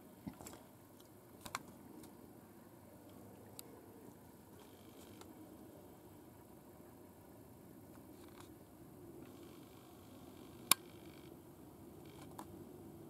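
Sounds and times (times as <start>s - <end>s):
faint steady background noise: 0.0s - 13.0s
faint ticks: 4.6s - 5.3s.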